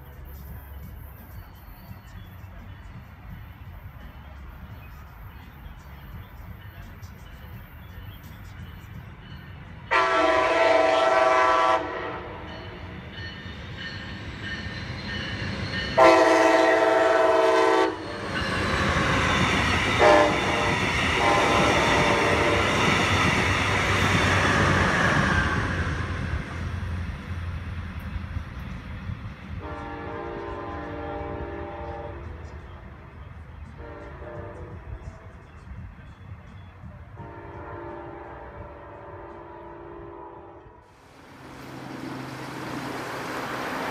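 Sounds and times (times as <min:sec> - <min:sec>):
train wheels rumbling on rails: 0:00.0 - 0:43.9
train horn blasts: 0:09.9 - 0:12.9, 0:15.7 - 0:18.2, 0:20.0 - 0:22.9, 0:29.6 - 0:32.4, 0:33.8 - 0:35.2, 0:37.2 - 0:40.8.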